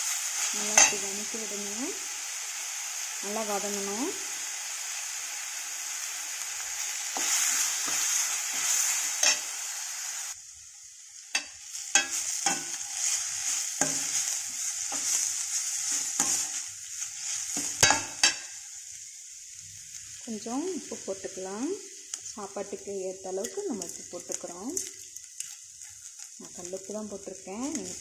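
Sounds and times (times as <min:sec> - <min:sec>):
food sizzling in oil: 0:00.0 - 0:28.0
steel spoon scraping a pan: 0:00.4 - 0:01.2, 0:06.8 - 0:10.3, 0:11.3 - 0:18.6, 0:23.4 - 0:26.3.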